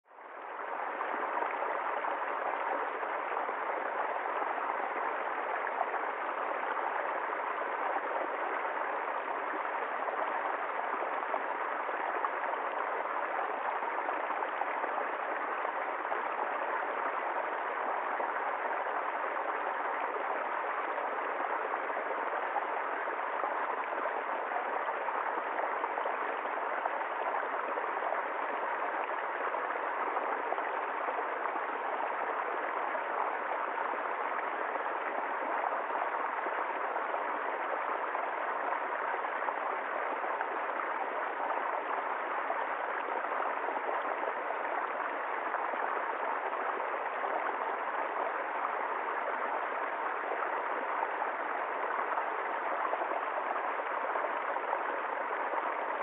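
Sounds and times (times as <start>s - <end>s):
stream water rushing and splashing: 0.1s - 56.0s.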